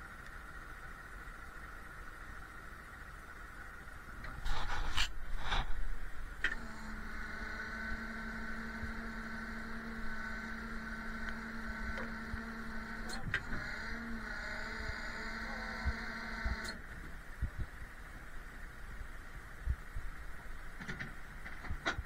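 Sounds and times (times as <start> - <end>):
electric motor whining: 4.4 - 16.9.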